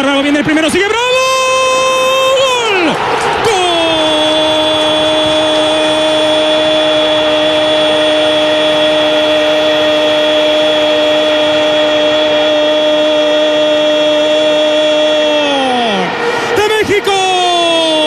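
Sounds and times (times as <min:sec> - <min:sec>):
steady horn-like tone: 0:03.9 - 0:15.4.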